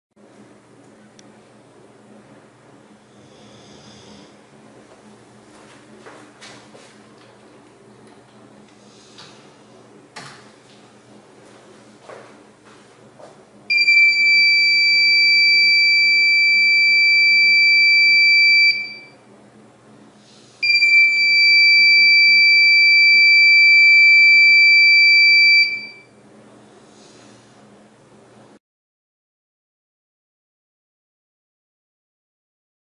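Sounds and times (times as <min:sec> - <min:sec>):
alarm buzzer high-pitched tone: 0:13.7 - 0:19.2, 0:20.6 - 0:26.1.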